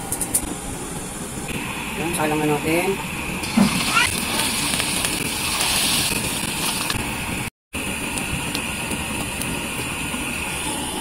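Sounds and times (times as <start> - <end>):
deep-frying sizzle in oil: 3.4 - 7.2.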